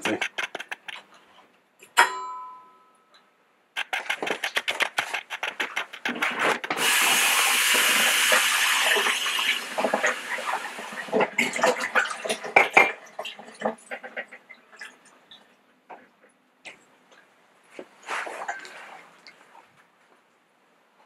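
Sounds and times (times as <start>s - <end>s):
coffeemaker sputtering and gurgling: 5.5s - 12.9s
coffeemaker hiss: 6.8s - 9.6s.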